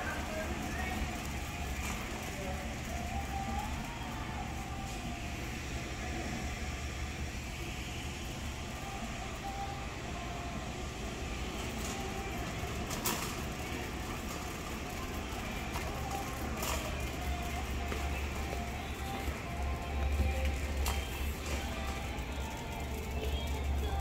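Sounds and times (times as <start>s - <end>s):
shopping cart rolling on concrete: 0.0s - 5.6s, 11.2s - 24.0s.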